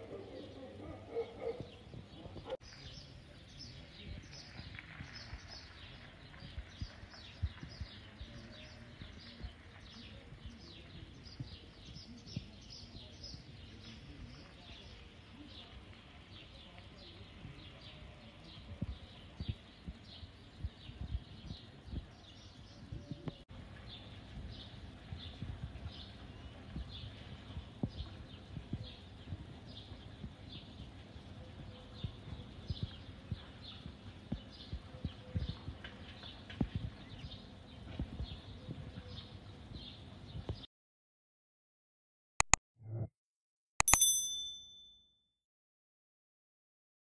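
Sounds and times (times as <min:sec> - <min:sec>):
birds chirping: 0:00.0 - 0:40.7
wind buffeting microphone: 0:03.6 - 0:13.7, 0:17.0 - 0:23.4, 0:24.2 - 0:40.6.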